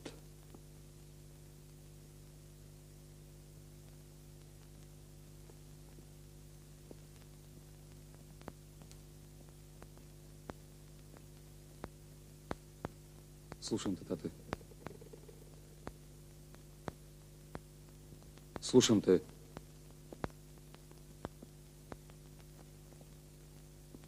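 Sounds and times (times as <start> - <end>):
electrical hum: 0.0 - 24.0
faint clicks: 6.8 - 24.0.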